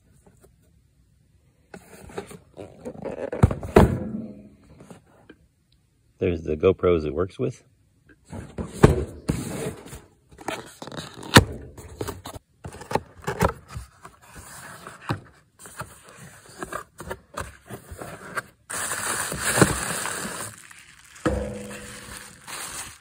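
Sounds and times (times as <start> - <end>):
cardboard box scraping and knocking: 8.3 - 23.0
packaging rustling: 15.7 - 23.0.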